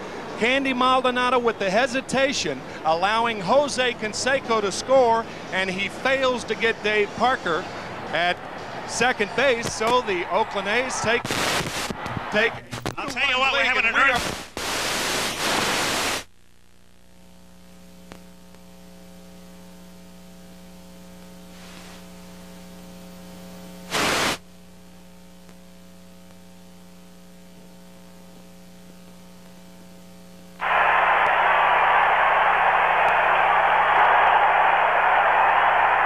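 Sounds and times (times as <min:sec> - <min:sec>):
electrical hum: 0:00.0 - 0:36.0
television static bursts: 0:09.0 - 0:18.6, 0:23.8 - 0:24.5, 0:30.5 - 0:36.0
loud hiss: 0:11.2 - 0:11.9, 0:14.2 - 0:16.3, 0:23.9 - 0:24.4, 0:30.6 - 0:34.6.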